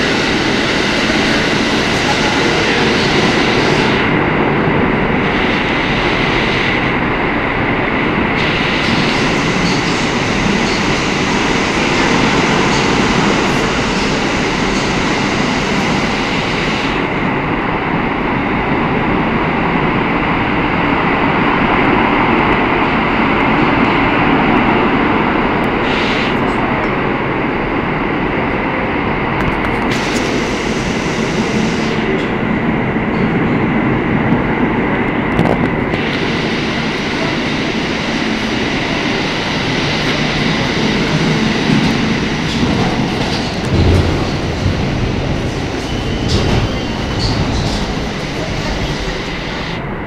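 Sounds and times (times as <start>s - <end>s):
subway train rumbling: 0.0s - 50.0s.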